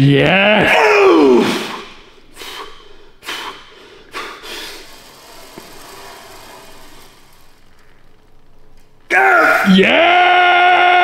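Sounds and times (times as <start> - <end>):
person breathing forcefully: 1.4 - 5.4.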